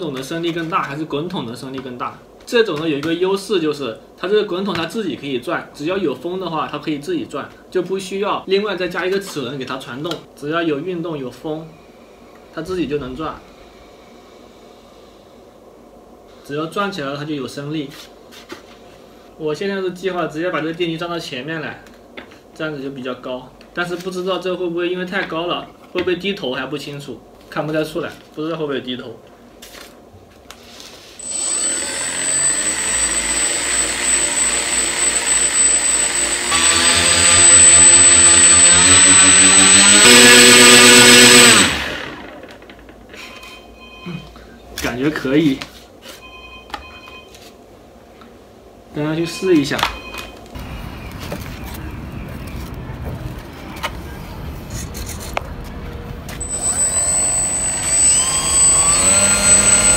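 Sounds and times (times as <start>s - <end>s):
electric motor high whine: 31.2s - 42.6s, 56.4s - 59.9s
low outdoor rumble: 50.6s - 56.4s.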